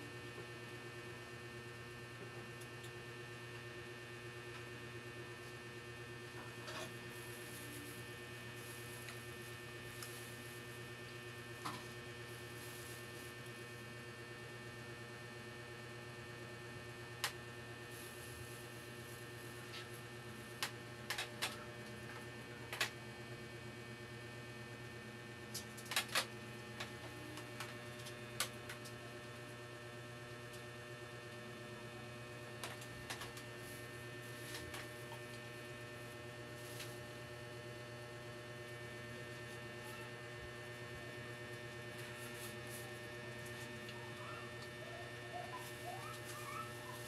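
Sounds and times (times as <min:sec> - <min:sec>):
electrical mains hum: 0:00.0 - 0:47.0.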